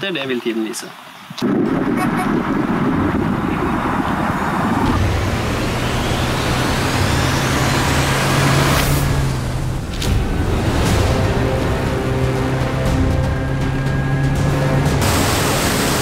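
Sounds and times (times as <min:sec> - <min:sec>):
water and air rushing: 0:01.3 - 0:16.0
outboard motor humming: 0:04.9 - 0:16.0.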